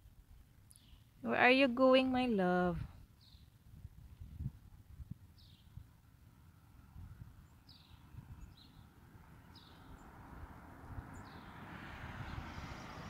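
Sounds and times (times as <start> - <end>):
small bird chirping: 3.2 - 3.5, 5.4 - 5.8, 7.4 - 8.9
vehicle passing: 8.0 - 13.0.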